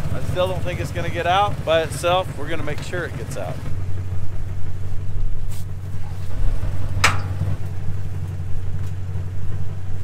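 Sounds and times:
truck engine idling: 0.0 - 10.0
metal hook clank: 7.0 - 7.4.

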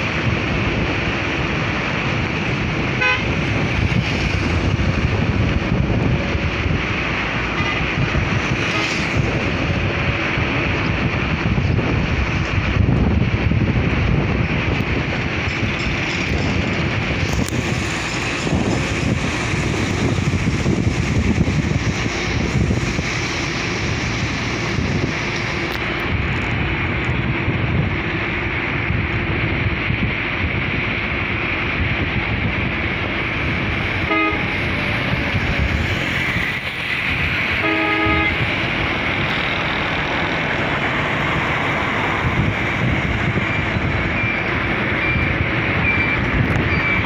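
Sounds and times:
road traffic noise: 0.0 - 47.0
vehicle horn toots: 3.0 - 3.4, 34.1 - 34.6, 37.6 - 38.4.

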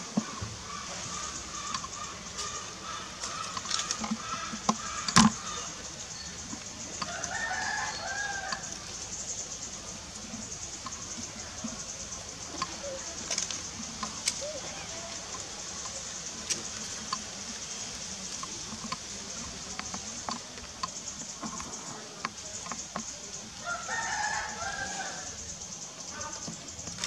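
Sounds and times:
drawn-out animal call: 0.0 - 17.4
scattered clicks and rustles: 8.5 - 23.6.

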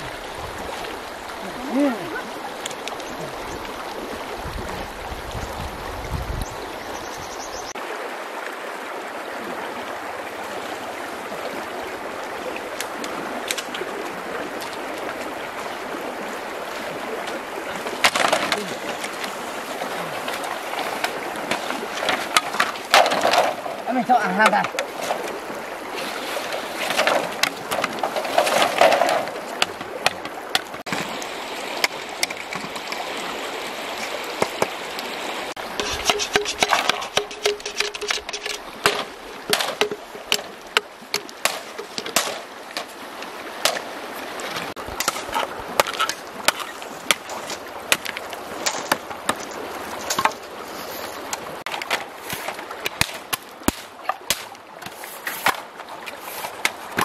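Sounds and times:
river running: 0.0 - 57.0
machete chopping bamboo: 35.8 - 42.9, 51.9 - 54.6.

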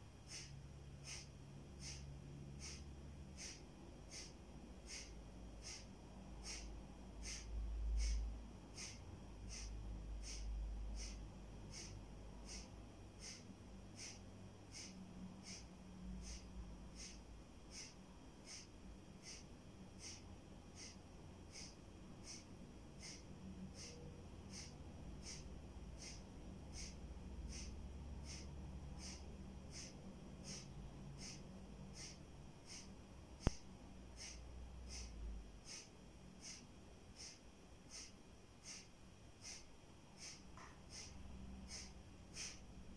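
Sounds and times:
forceful nasal exhalations: 0.3 - 2.0, 4.9 - 8.2, 13.2 - 13.4, 16.2 - 17.9, 18.5 - 19.4, 20.0 - 20.2, 26.0 - 33.6, 34.2 - 36.6, 37.2 - 42.6
sharp click: 0.3 - 2.0, 2.6 - 4.3, 4.9 - 8.2, 8.8 - 15.6, 17.0 - 19.4, 23.0 - 36.6, 37.2 - 42.6.

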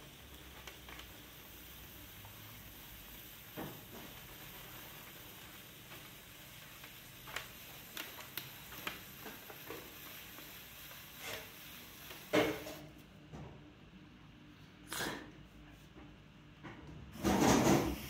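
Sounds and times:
trimming tool scraping hiss: 6.9 - 12.8.

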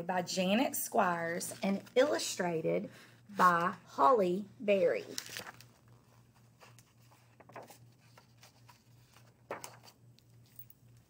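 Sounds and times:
book pages turning: 5.0 - 10.5.

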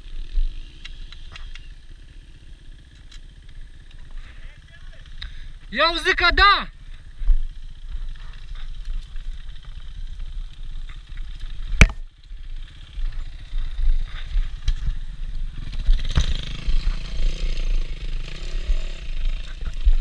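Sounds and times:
motorcycle engine running: 6.7 - 20.0.

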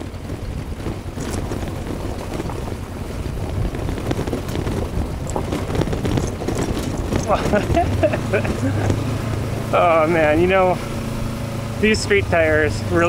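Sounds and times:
stones clicking under tyres: 0.0 - 10.7
motorcycle engine running: 0.0 - 13.0
wind noise on microphone: 0.0 - 13.0.

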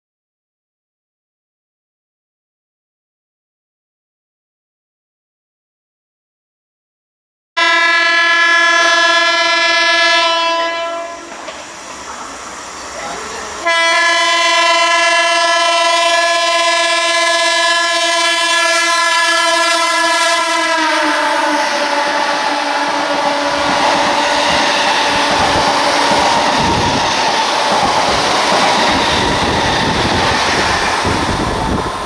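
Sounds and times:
train horn blasts: 7.6 - 11.4, 13.6 - 24.4
passing coaches wheel clatter: 8.8 - 14.6, 19.2 - 32.0
train running rumble: 21.3 - 32.0.

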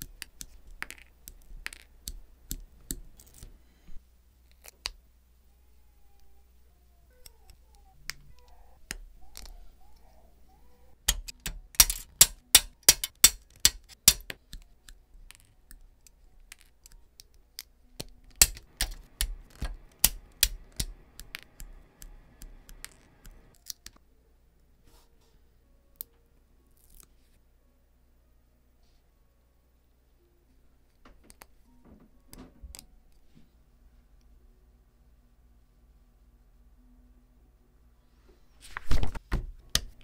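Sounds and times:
plastic parts clicking: 11.0 - 21.7.

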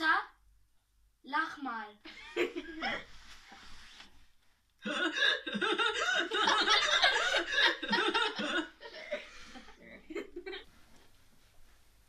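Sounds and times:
children laughing: 2.1 - 3.1, 4.8 - 10.7.

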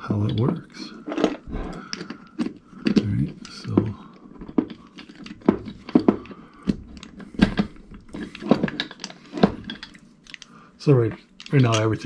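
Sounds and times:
gears clicking and rattling: 11.4 - 12.0.

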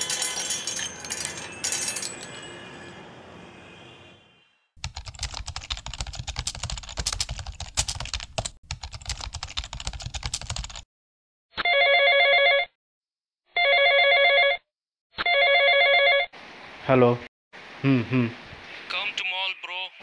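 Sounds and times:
keys clacking: 0.0 - 2.6
phone ringtone trilling: 11.6 - 12.7, 13.6 - 14.6, 15.2 - 16.3.

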